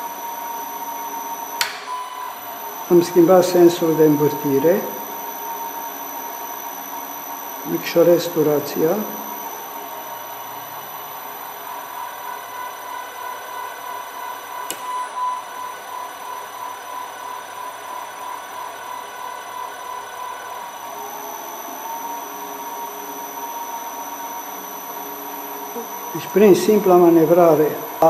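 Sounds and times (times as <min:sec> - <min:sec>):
electric motor whine: 0:00.0 - 0:28.0.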